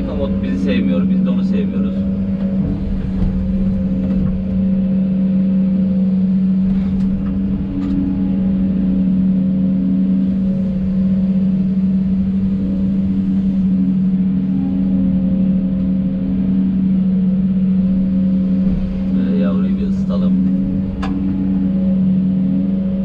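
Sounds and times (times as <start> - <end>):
excavator diesel engine running: 0.0 - 15.8.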